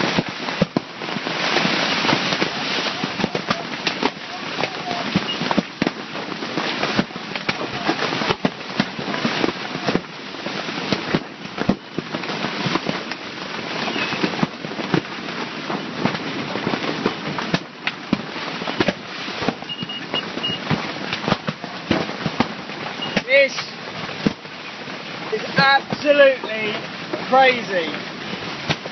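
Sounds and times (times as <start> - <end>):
hail pounding on fabric: 0.0 - 28.9
steady hiss: 21.9 - 28.9.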